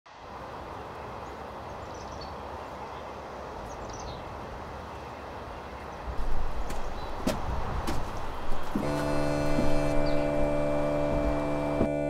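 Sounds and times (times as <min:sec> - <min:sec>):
outdoor background noise: 0:00.1 - 0:12.0.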